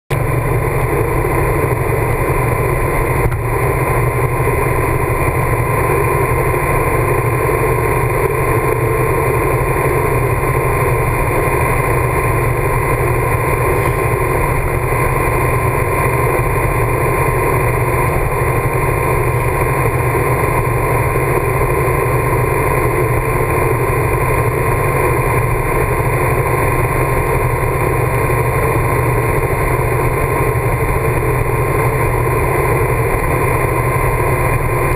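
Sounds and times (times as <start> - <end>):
motorcycle engine drone: 0.1 - 34.9.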